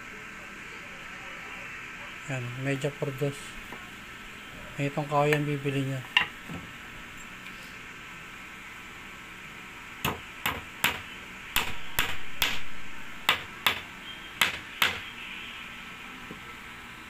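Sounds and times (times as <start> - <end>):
hammer tapping nail into wood: 11.6 - 12.6, 14.4 - 15.0.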